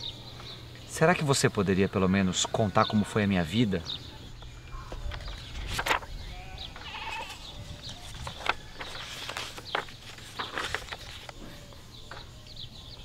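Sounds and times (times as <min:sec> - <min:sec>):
book pages turning: 0:04.9 - 0:06.1, 0:06.7 - 0:11.7.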